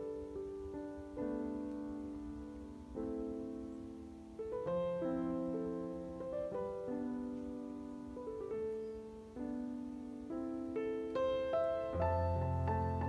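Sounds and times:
slow solo piano: 0.0 - 13.0.

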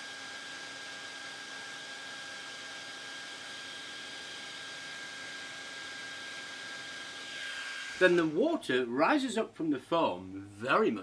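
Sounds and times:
electric blower rushing air: 6.0 - 8.6.

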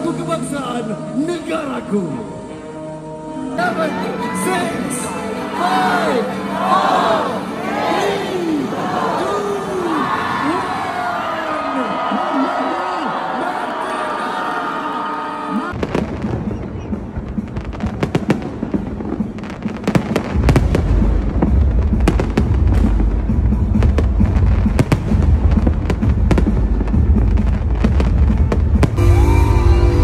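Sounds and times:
fireworks bangs and crackles: 15.7 - 29.3.

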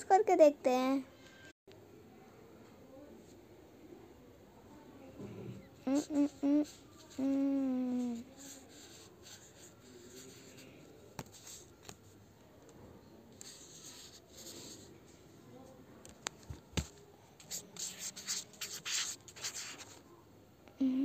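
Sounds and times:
marker scratching on paper: 5.8 - 7.3, 7.9 - 12.0, 13.3 - 14.9, 16.8 - 20.0.

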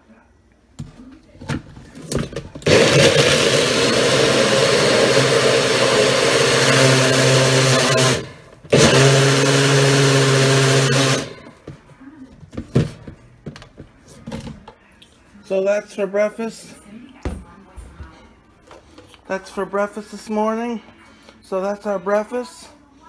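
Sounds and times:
blender motor running: 2.6 - 11.5.

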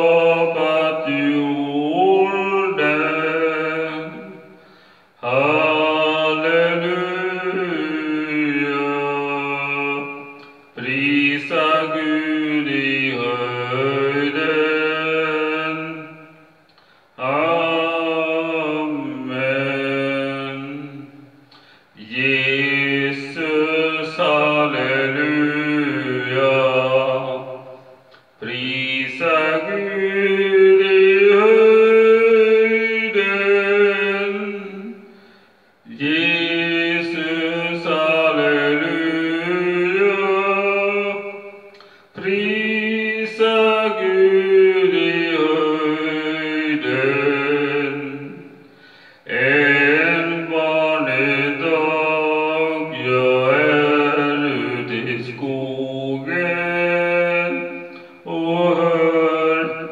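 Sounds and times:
man singing unaccompanied: 0.0 - 4.6, 5.2 - 16.6, 17.2 - 35.2, 35.8 - 59.9
man breathing: 4.5 - 5.2, 16.6 - 17.2, 21.4 - 22.0, 35.0 - 35.8, 41.7 - 42.2, 48.6 - 49.3, 57.8 - 58.3.

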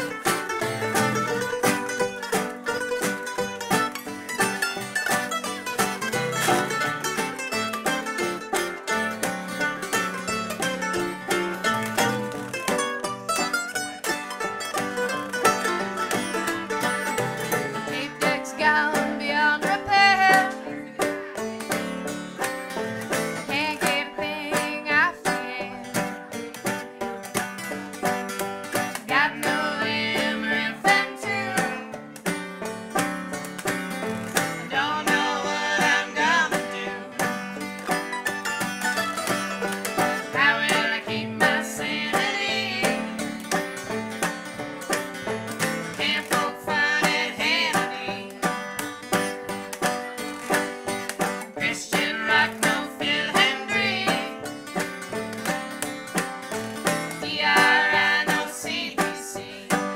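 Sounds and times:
acoustic string band playing: 0.0 - 59.9
woman singing lead: 17.8 - 21.0, 23.4 - 26.0, 29.0 - 31.9, 34.6 - 37.1, 40.2 - 43.2, 46.0 - 48.5, 51.5 - 54.4, 57.2 - 59.9
men singing along: 29.1 - 31.8, 34.6 - 37.1, 40.3 - 43.0, 46.0 - 48.2, 51.6 - 54.3, 57.2 - 59.6.

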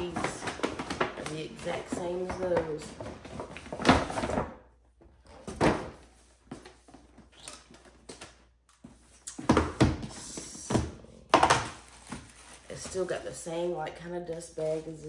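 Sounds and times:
gift-wrap paper rustling: 11.8 - 15.0.

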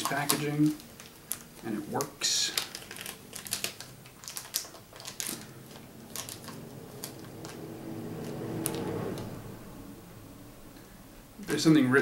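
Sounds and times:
wrapping crinkling: 0.0 - 9.4
low steady hum: 0.0 - 12.0.

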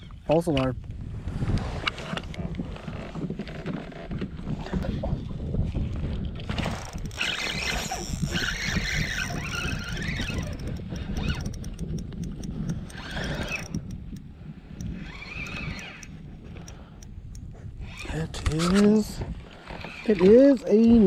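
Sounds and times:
wind rumbling on microphone: 0.0 - 21.0
fishing reel cranking: 6.5 - 19.0, 19.6 - 21.0
short high squeaky whines: 6.8 - 11.8, 12.8 - 13.9, 15.0 - 16.1.

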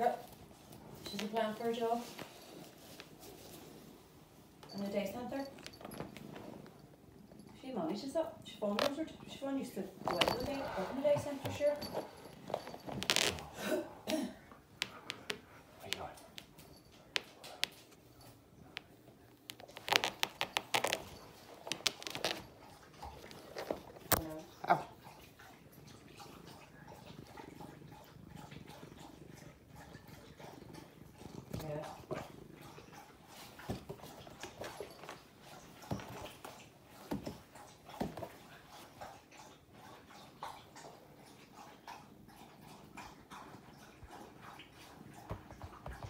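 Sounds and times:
hand rustling on fabric chair: 10.0 - 13.6
cat scratching fabric chair: 19.4 - 24.5.

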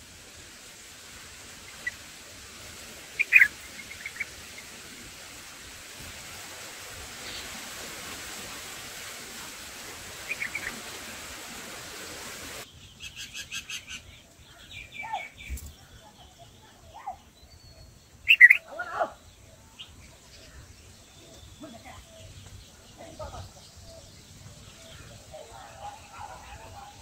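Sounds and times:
steady hiss: 0.0 - 18.6, 19.2 - 27.0
bird chirps: 3.2 - 4.3, 12.7 - 25.5.

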